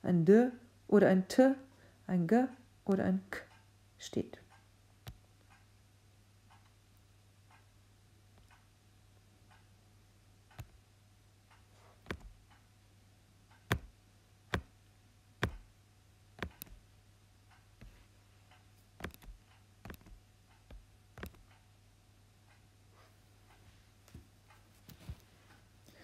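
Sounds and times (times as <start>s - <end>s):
steady low hum: 0.0s - 26.0s
sharp clicks: 8.4s - 8.7s, 10.5s - 10.8s, 11.5s - 12.6s, 13.5s - 14.8s, 15.4s - 15.7s, 16.4s - 16.9s, 17.5s - 21.7s.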